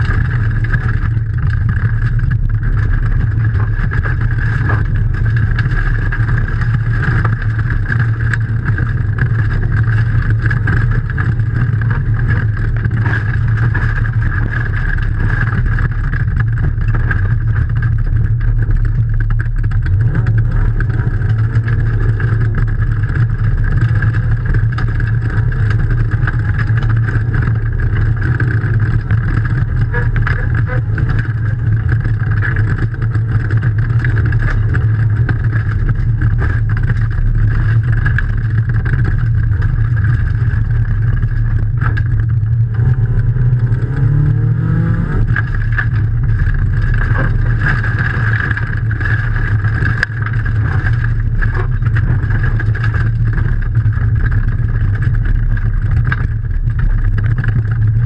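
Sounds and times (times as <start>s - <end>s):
car engine running hard: 0.0s - 58.0s
gravel ticking against car: 0.0s - 58.0s.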